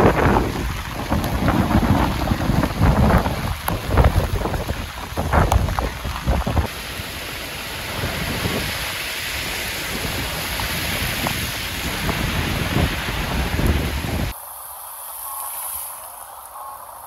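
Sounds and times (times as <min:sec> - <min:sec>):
wind buffeting microphone: 0:00.0 - 0:06.7, 0:07.5 - 0:14.4
heavy rain pouring on street: 0:00.0 - 0:17.0.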